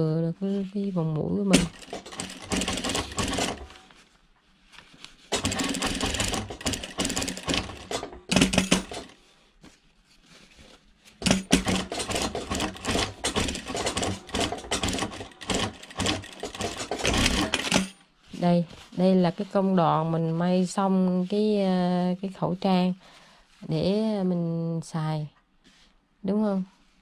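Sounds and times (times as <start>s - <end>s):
sewing machine stitching: 1.5s - 3.9s, 5.3s - 9.2s, 11.2s - 18.0s.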